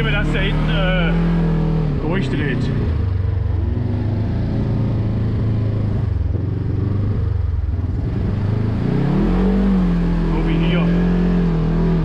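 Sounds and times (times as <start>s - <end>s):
off-road vehicle engine running: 0.0s - 12.0s.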